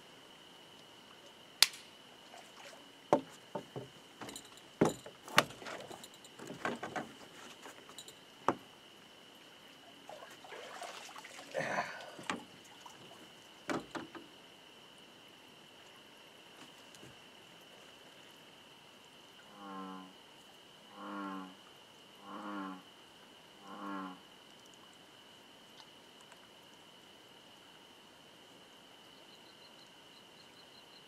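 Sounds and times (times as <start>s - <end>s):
water splashing and dripping: 9.9s - 14.2s.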